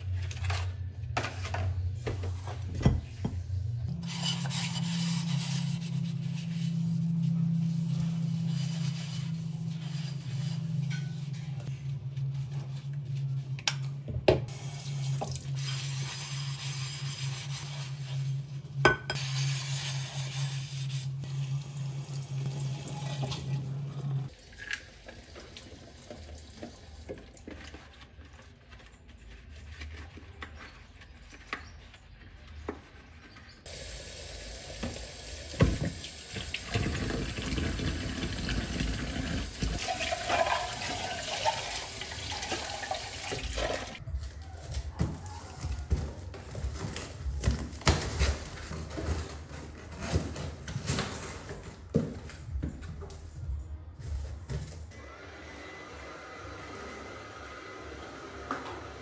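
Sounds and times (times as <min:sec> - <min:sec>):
sponge scrubbing dishes: 0:03.9 - 0:11.7, 0:36.4 - 0:44.0.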